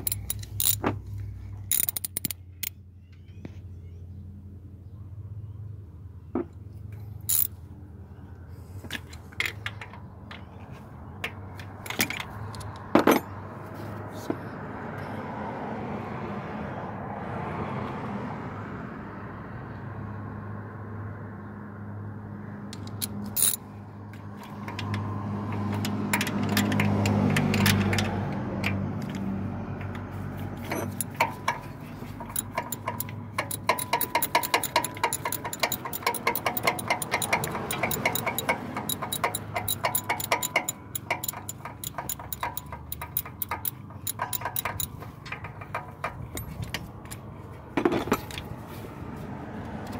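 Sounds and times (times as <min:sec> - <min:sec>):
hand ratchet clicking: 0:00.0 - 0:00.8, 0:01.7 - 0:02.4, 0:07.3 - 0:07.5, 0:22.8 - 0:23.6, 0:30.7 - 0:46.8.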